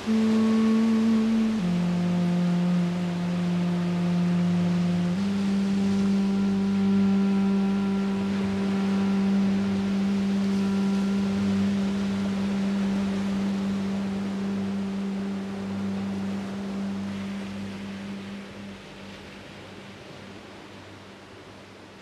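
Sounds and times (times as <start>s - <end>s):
duduk holding low note: 0.0s - 21.6s
waves washing: 0.0s - 22.0s.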